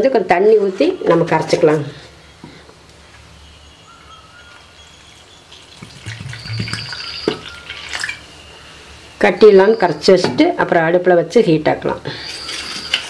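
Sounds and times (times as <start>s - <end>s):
water pouring into a pan: 5.5s - 8.3s.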